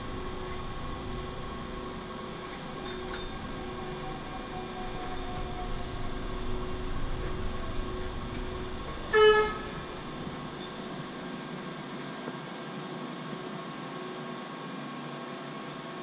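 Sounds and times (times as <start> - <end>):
bus cabin hum and rumble: 0.0 - 16.0
bus horn toot: 9.1 - 10.1.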